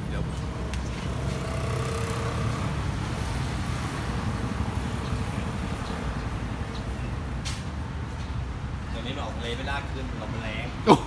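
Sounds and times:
engine rumble: 0:00.0 - 0:08.6
road traffic: 0:00.0 - 0:11.0.

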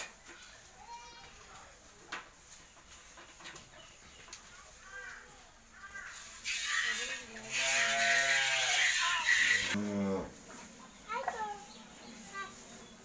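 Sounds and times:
cow mooing: 0:07.5 - 0:10.3.

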